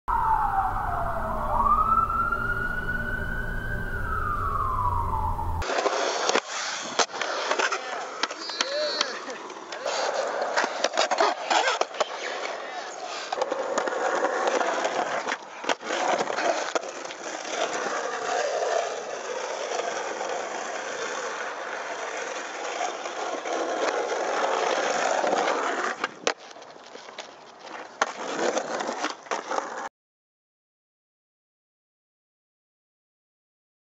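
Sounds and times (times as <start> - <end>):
skateboard wheels rolling on pavement: 0.1 - 29.9
skateboard clacks: 5.6 - 29.9.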